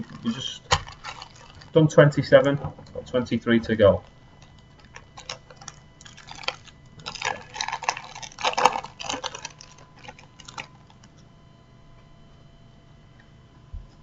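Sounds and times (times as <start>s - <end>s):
foil wrapper crinkling and tearing: 0.0s - 2.6s, 4.0s - 11.1s.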